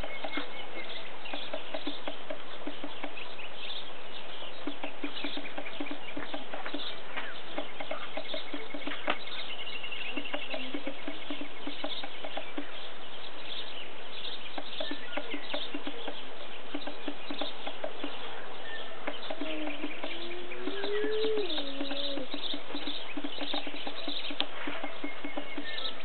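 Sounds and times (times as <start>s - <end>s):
small ticks and chirps: 0.0s - 26.0s
long rising and falling call: 19.4s - 22.5s.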